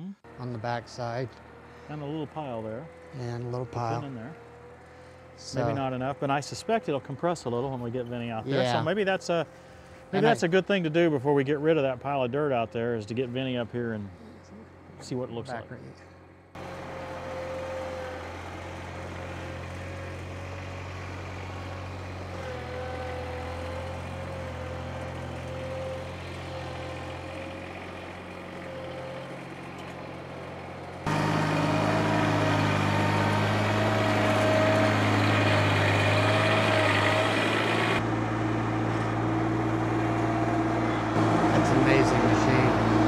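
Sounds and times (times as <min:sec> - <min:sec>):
tractor engine running: 0:00.2 - 0:13.3, 0:16.0 - 0:43.0
power rake high whine: 0:00.3 - 0:11.8, 0:16.6 - 0:43.0.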